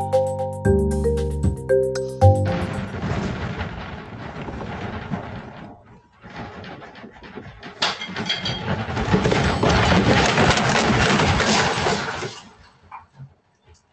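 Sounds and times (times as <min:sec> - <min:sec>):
earthquake rumble: 0:02.7 - 0:12.6
room contents rattling: 0:02.9 - 0:12.6.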